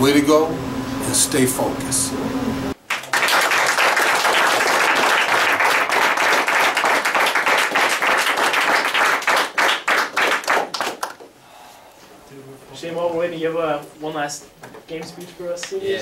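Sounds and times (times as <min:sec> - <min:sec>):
people applauding: 0:02.8 - 0:11.3.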